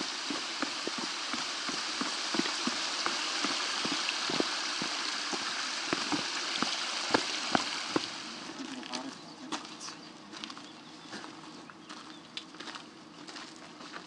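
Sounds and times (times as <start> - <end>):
footsteps on dirt trail: 0.0 - 8.2, 8.8 - 14.0
steady rushing hiss: 0.0 - 10.0
footsteps on wooden steps: 0.2 - 8.2.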